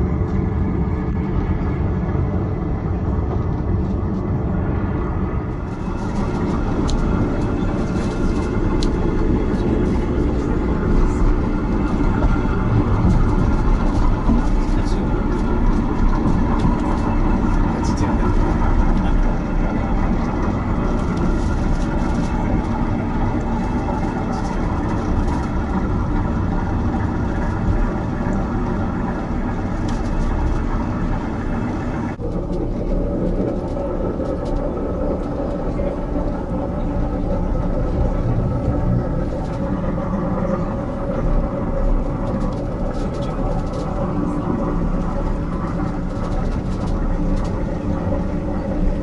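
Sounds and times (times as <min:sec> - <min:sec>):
train rumbling on rails: 0:00.0 - 0:49.0.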